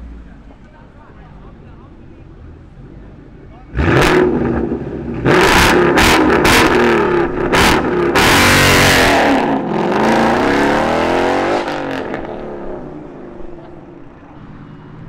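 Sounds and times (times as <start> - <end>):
car engine revving hard: 3.7 - 13.2.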